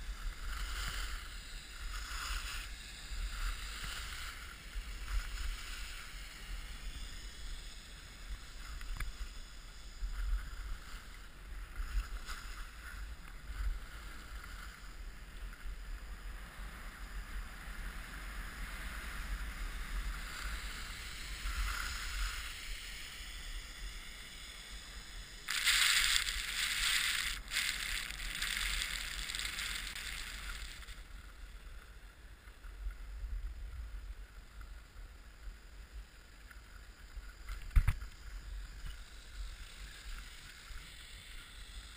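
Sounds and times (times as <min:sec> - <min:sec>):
skis scraping over packed snow: 0:00.0 - 0:41.9.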